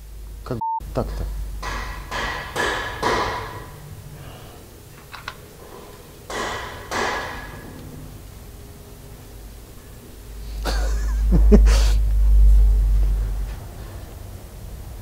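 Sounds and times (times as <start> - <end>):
sharp metal knocks: 1.2 - 4.0, 6.3 - 8.1.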